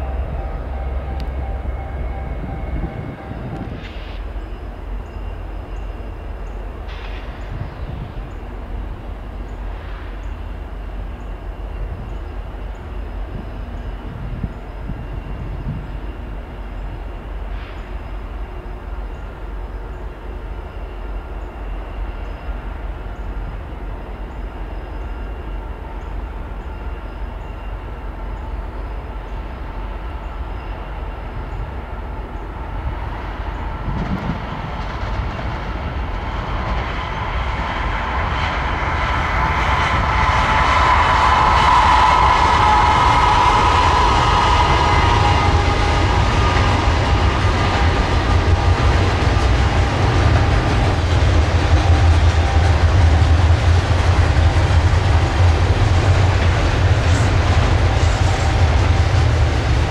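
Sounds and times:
diesel locomotive rumble: 0.0 - 59.9.

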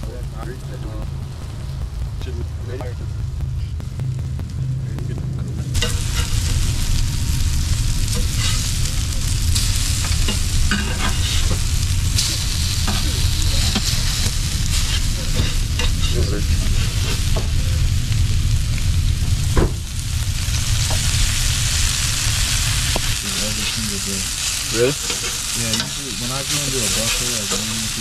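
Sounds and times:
fish sizzling on a barbecue: 0.0 - 4.6, 5.6 - 28.0
cooking utensil clicks and scrapes: 12.2 - 16.2.

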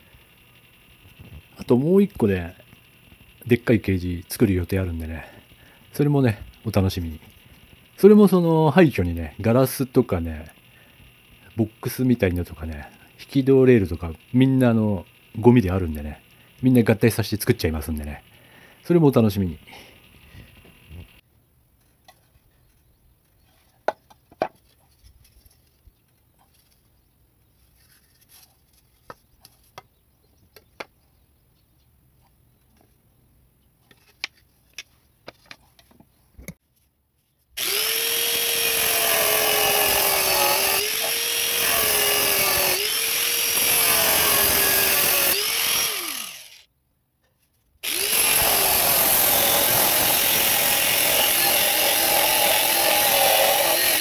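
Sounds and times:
boards knocking and clicking: 23.8 - 24.6
angle grinder cutting: 37.6 - 46.7, 47.8 - 54.0.

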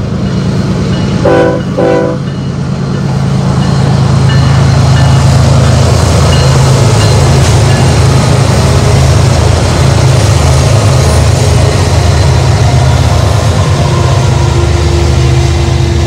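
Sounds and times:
diesel locomotives passing: 0.0 - 16.0.

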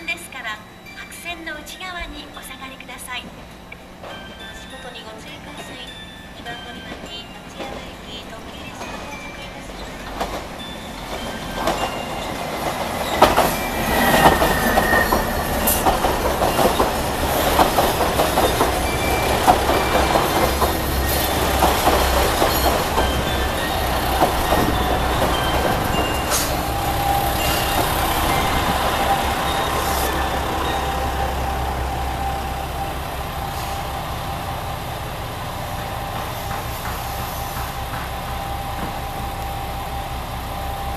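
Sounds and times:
train wheels clacking over rail joints: 7.0 - 30.8, 35.7 - 39.3.

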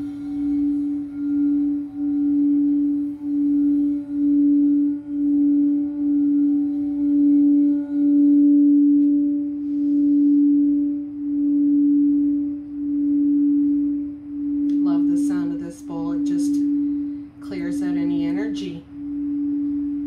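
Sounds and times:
crystal singing bowl hum: 0.0 - 20.0
woman speaking: 14.7 - 18.9.

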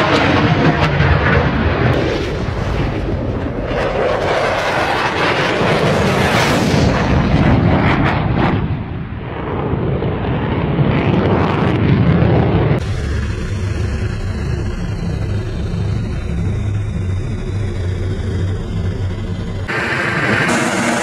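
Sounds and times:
aircraft engine roar: 0.0 - 21.0
explosion blasts: 11.1 - 21.0.

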